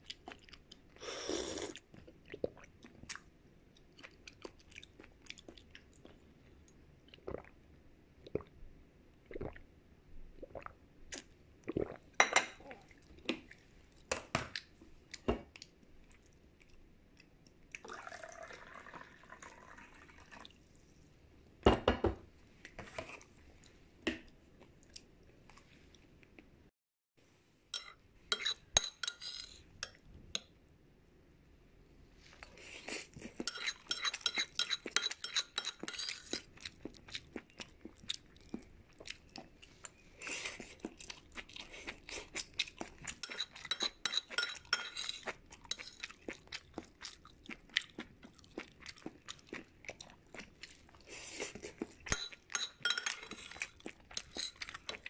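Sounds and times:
utensils clinking against a dish: 0:27.8 - 0:30.0, 0:33.4 - 0:36.4, 0:43.2 - 0:46.0, 0:52.1 - 0:55.0.

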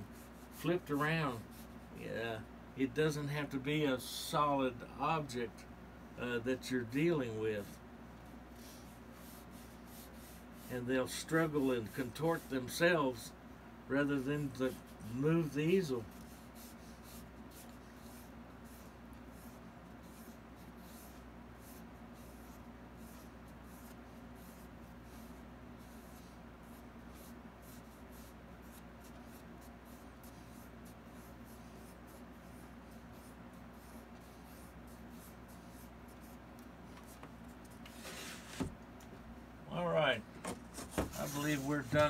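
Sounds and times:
paintbrush brushing on canvas: 0:00.0 - 0:01.8, 0:08.6 - 0:12.8, 0:14.1 - 0:38.7, 0:40.7 - 0:42.0.

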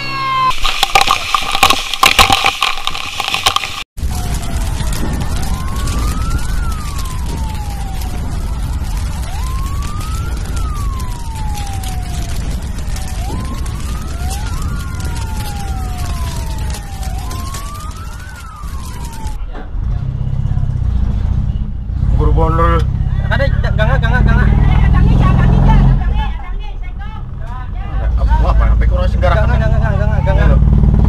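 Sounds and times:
emergency siren wailing: 0:00.0 - 0:19.4.

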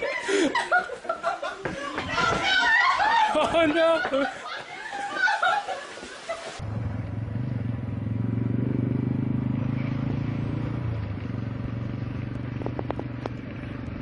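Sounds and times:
low engine drone: 0:06.6 - 0:14.0.

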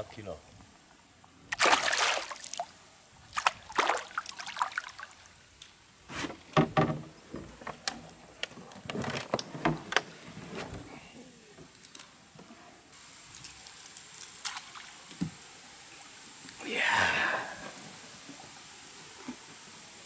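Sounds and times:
fish splashing in water: 0:01.5 - 0:02.7, 0:03.3 - 0:05.2.

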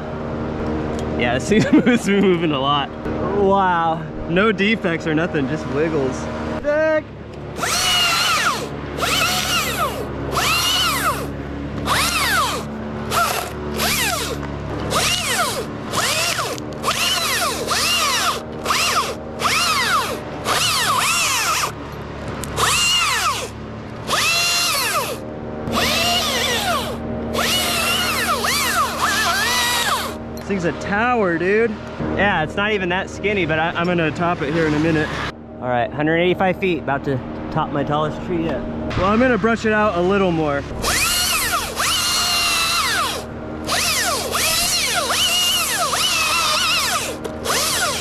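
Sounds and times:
chainsaw revving and idling: 0:07.2 - 0:35.4, 0:40.0 - 0:48.0.

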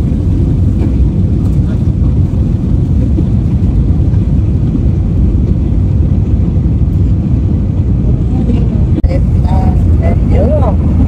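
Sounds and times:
jet engines and airflow rumble: 0:00.0 - 0:11.0.

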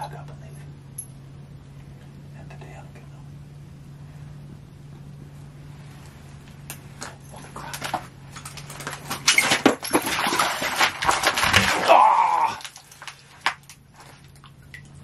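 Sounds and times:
low hum: 0:00.0 - 0:15.0
gear and clothing clattering: 0:07.0 - 0:14.2
person crying out: 0:11.7 - 0:12.7.

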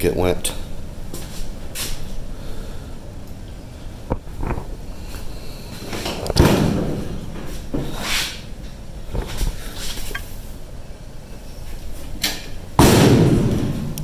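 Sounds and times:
loud bangs echoing in garage: 0:06.4 - 0:07.3, 0:12.8 - 0:14.0.

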